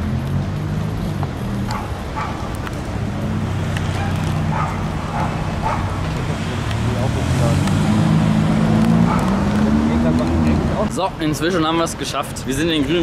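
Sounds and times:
low rumble of street traffic: 0.0s - 13.0s
dog barking: 1.7s - 2.5s, 3.9s - 6.0s, 9.0s - 9.4s.

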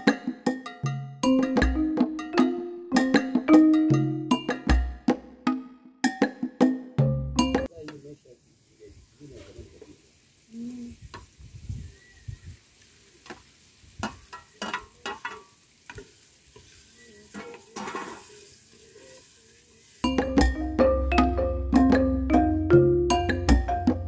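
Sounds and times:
music: 0.0s - 7.8s, 20.0s - 24.0s
faint sizzle: 7.7s - 20.3s
utensil scraping and knocking pot: 14.0s - 18.4s.

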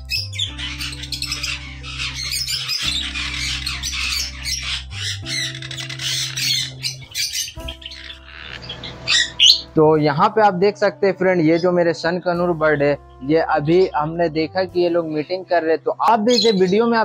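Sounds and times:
parrots squawking: 0.0s - 9.7s, 16.3s - 16.9s
background music with low notes: 0.0s - 17.0s.

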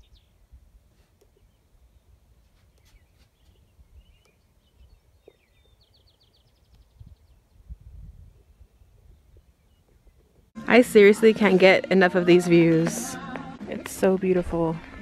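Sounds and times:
songbirds chirping and singing: 1.2s - 7.8s
wind rumble on microphone: 3.5s - 10.5s.

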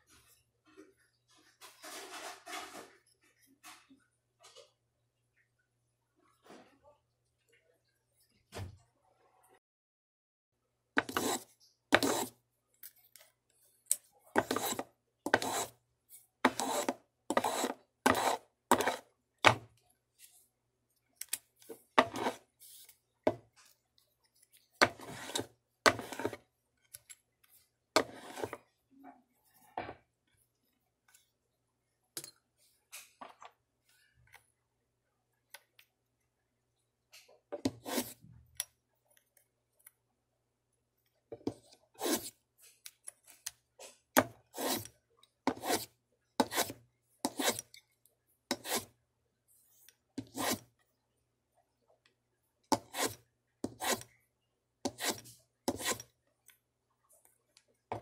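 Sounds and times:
hand tool scraping wood: 11.0s - 12.4s, 14.4s - 15.8s, 16.4s - 19.1s, 22.0s - 22.5s, 24.8s - 26.4s, 28.0s - 28.6s, 42.0s - 42.3s, 44.5s - 44.9s, 45.5s - 47.7s, 48.5s - 48.9s, 50.2s - 50.6s, 52.7s - 54.1s, 54.9s - 56.1s.

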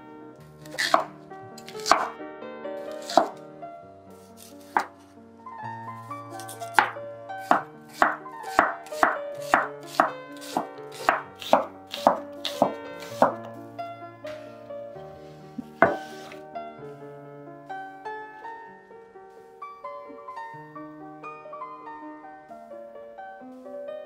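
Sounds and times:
soft background music: 0.0s - 24.0s
cleaver knocking on cutting board: 1.8s - 2.1s, 3.0s - 3.3s, 6.7s - 13.4s, 15.6s - 16.1s.

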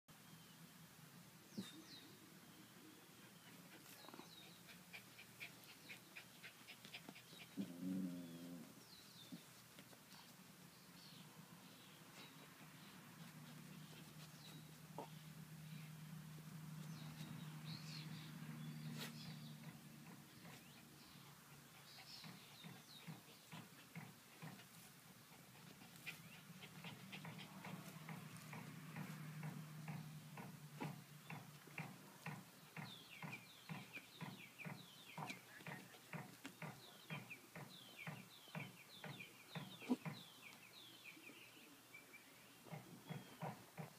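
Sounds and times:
bird chirping: 0.1s - 43.9s
dog paws scratching soil: 12.0s - 15.3s.

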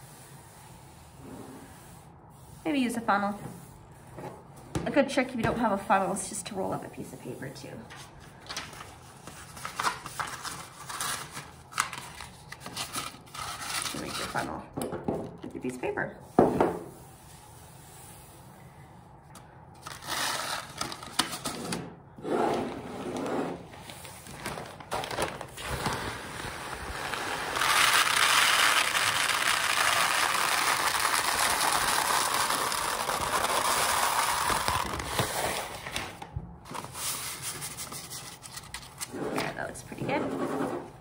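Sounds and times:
paper and plastic bag rustling: 19.8s - 21.6s, 23.6s - 39.5s
lentils pouring into a jar: 26.0s - 34.9s.

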